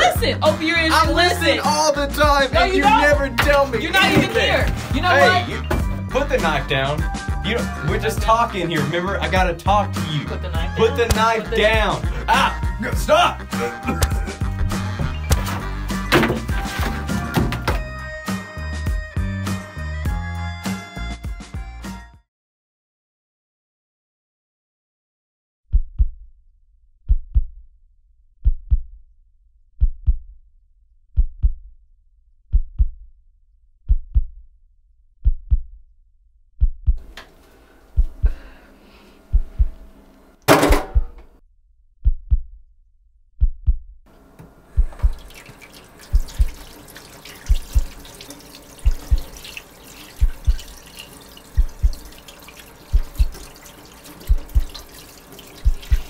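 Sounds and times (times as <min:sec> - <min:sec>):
tap water running into sink: 0:02.9 - 0:05.9, 0:15.0 - 0:17.9, 0:44.2 - 0:56.0
heartbeat thumps: 0:25.7 - 0:26.2, 0:27.1 - 0:27.6, 0:28.4 - 0:29.0, 0:29.8 - 0:30.3, 0:31.2 - 0:31.7, 0:32.5 - 0:33.0, 0:33.9 - 0:34.4, 0:35.2 - 0:35.8, 0:36.6 - 0:37.1, 0:37.9 - 0:38.5, 0:39.3 - 0:39.9, 0:40.5 - 0:41.3, 0:42.0 - 0:42.6, 0:43.4 - 0:44.0, 0:44.8 - 0:45.3, 0:46.1 - 0:46.8, 0:47.4 - 0:48.1, 0:48.8 - 0:49.5, 0:50.2 - 0:50.8, 0:51.6 - 0:52.2, 0:52.9 - 0:53.5, 0:54.2 - 0:54.9, 0:55.6 - 0:56.0.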